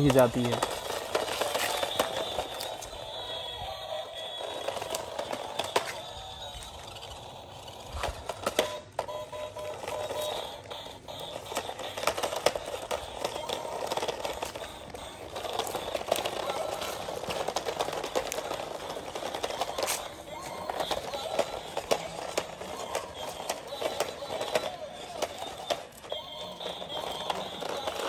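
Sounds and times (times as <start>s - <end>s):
plastic toy car clattering on bricks: 0.0s - 3.6s, 4.3s - 28.0s
toy speaker playing music: 0.0s - 28.0s.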